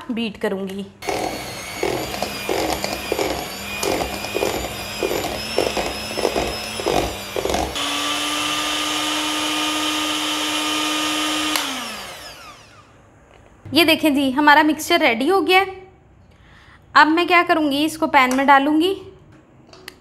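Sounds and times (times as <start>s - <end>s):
electric hand mixer whine: 1.0s - 13.0s.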